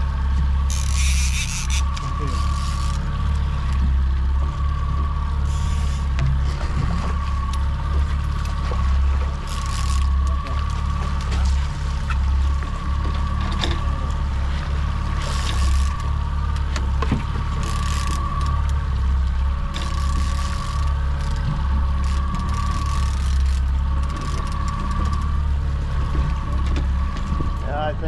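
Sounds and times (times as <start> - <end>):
boat engine running: 0.0 - 28.0.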